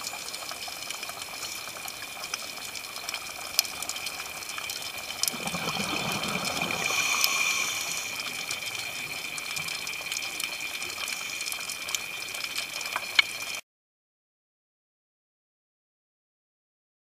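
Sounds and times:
exhaled air bubbles underwater: 0.0 - 13.6
steady underwater hiss: 0.0 - 13.6.

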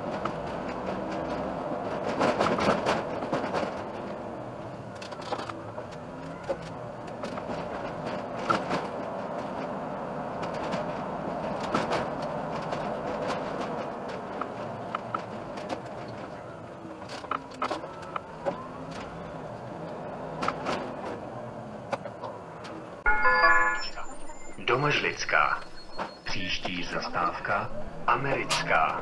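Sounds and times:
interior rattles and clicks: 0.0 - 23.0
bus engine and road noise: 0.0 - 29.0.

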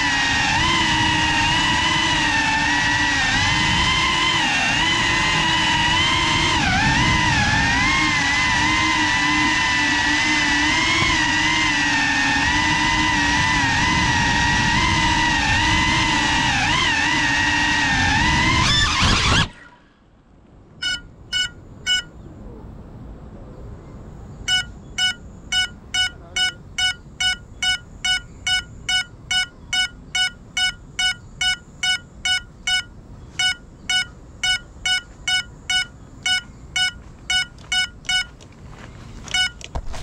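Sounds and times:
faint high whine: 18.6 - 40.0
drone buzzer beeping: 20.8 - 22.1, 24.4 - 38.4, 39.3 - 39.7.

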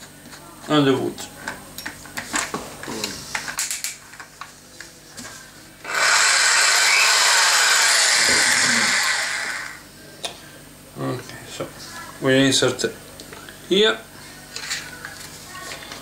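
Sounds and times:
drill running free: 5.8 - 9.8.

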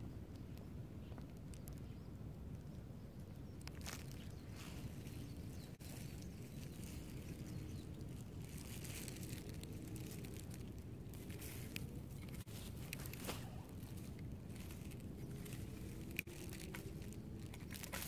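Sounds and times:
wind rumble on microphone: 0.0 - 18.0
dry grass rustling and crackling: 3.4 - 18.0.

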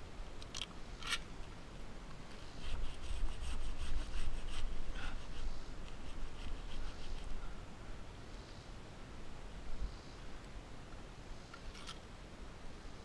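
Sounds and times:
handsaw cutting through wood: 2.6 - 7.3.

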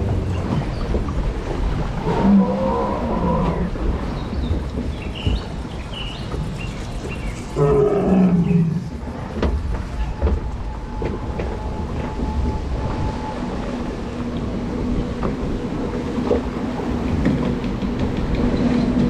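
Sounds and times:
boat rumbling through water: 0.0 - 19.0
recorded dinosaur roars: 2.0 - 3.8, 7.6 - 8.9.

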